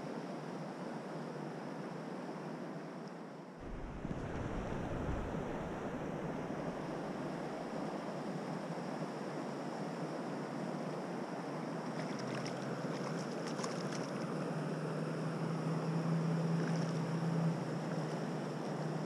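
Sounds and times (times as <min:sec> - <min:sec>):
wind on microphone: 0:03.6 - 0:08.3
river water rushing: 0:03.6 - 0:08.4
low steady hum: 0:03.6 - 0:09.8.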